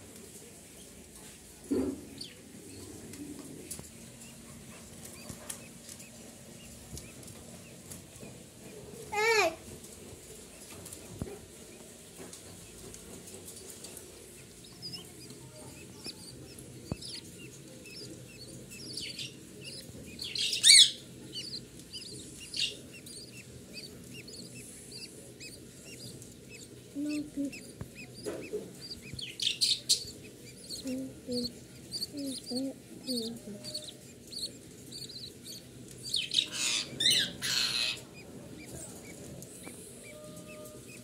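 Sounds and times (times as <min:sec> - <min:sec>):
budgerigars cheeping: 0:14.3 - 0:41.0.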